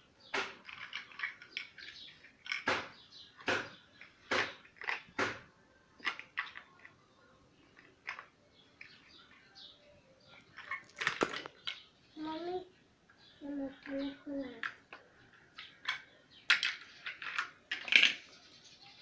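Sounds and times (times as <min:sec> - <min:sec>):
plastic blocks clacking on tile floor: 0:00.3 - 0:07.0, 0:07.6 - 0:09.1, 0:10.4 - 0:11.8, 0:13.8 - 0:18.6.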